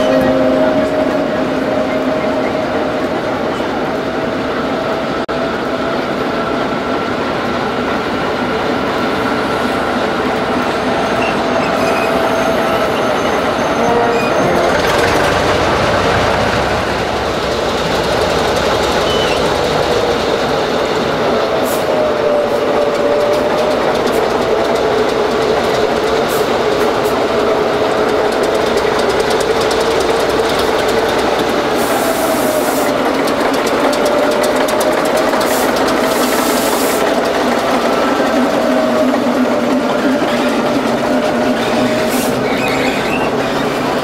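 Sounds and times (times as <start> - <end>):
diesel locomotive idling: 0.0 - 44.0.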